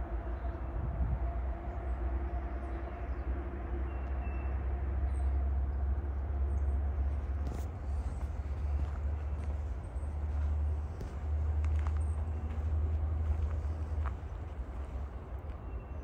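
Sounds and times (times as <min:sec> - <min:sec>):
droning hum: 0:00.0 - 0:16.0
low rumble: 0:06.0 - 0:16.0.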